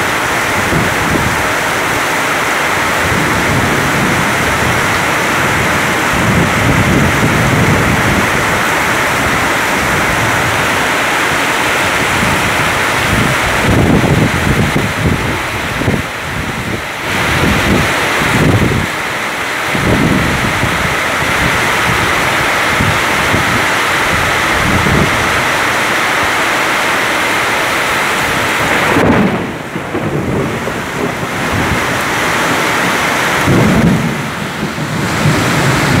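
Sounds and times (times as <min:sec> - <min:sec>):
thunder rumbles: 0:00.0 - 0:19.0, 0:27.0 - 0:36.0
gusting wind: 0:00.0 - 0:36.0
heavy rain pouring: 0:00.0 - 0:36.0.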